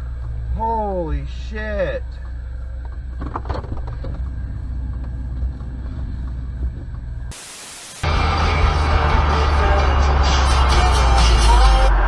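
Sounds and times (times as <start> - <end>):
car engine hum and road noise: 0.0 - 12.0
static hiss: 7.3 - 8.0.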